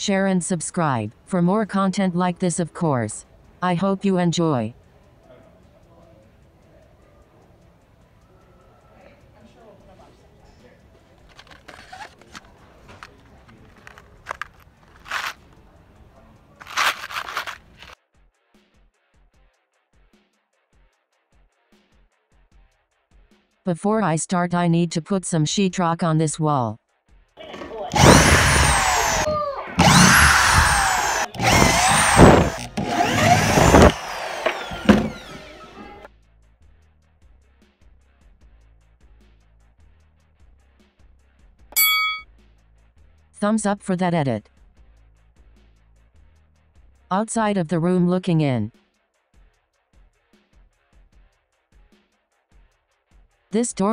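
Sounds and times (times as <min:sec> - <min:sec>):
blister pack being handled: 0:11.2 - 0:15.6, 0:16.6 - 0:18.0
power drill whining: 0:16.6 - 0:18.0, 0:27.6 - 0:36.1.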